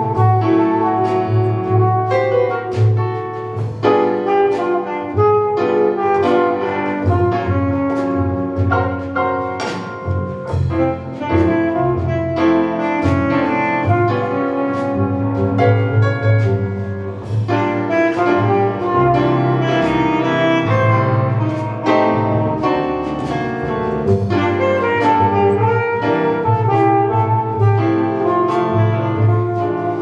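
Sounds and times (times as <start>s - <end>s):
double bass: 0.0s - 30.0s
drum kit with cymbal strokes: 0.0s - 30.0s
piano: 0.0s - 30.0s
saxophone melody: 3.9s - 9.1s, 10.7s - 16.6s, 17.5s - 23.0s, 24.3s - 30.0s.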